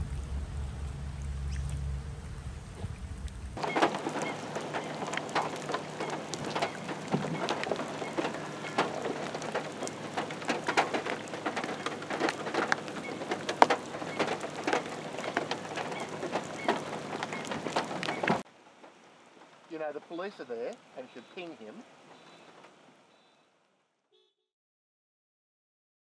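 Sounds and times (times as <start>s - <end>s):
low rumble: 0.0s - 18.4s
rain falling on water: 0.0s - 24.0s.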